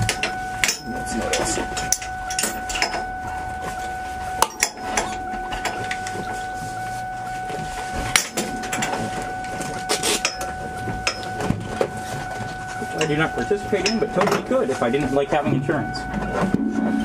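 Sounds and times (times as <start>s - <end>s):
steady thin tone: 0.0s - 17.0s
low rumble: 15.6s - 17.0s.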